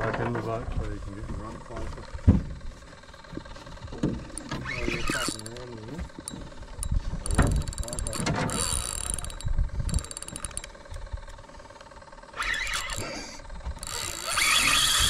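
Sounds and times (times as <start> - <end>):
fishing reel clicking: 4.2 - 15.0.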